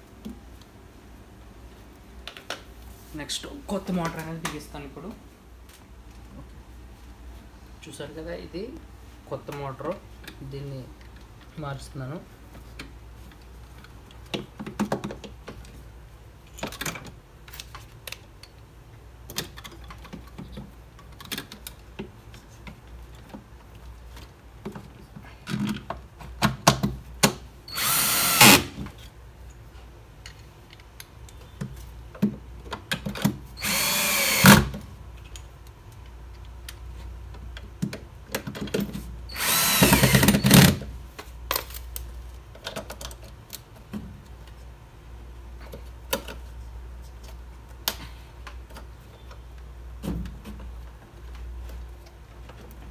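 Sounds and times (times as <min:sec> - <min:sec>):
clicks and knocks of parts handled: 0:16.4 - 0:27.5, 0:28.8 - 0:33.4, 0:35.1 - 0:39.1, 0:41.0 - 0:44.8, 0:45.5 - 0:52.9
cordless drill driving screws: 0:27.7 - 0:28.8, 0:33.6 - 0:34.7, 0:39.3 - 0:40.8.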